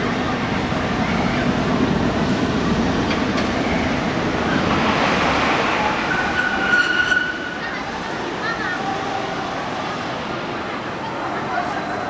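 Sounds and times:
tram rumbling: 0:00.0 - 0:12.0
high squealing tone: 0:06.1 - 0:07.7.

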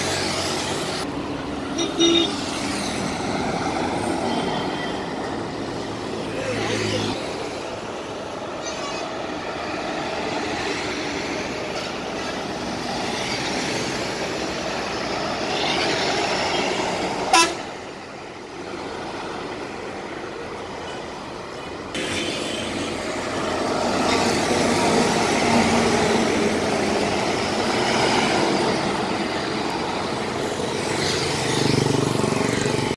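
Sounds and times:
road traffic passing: 0:00.0 - 0:32.9
vehicle horns honking: 0:01.8 - 0:02.4, 0:17.3 - 0:17.7.

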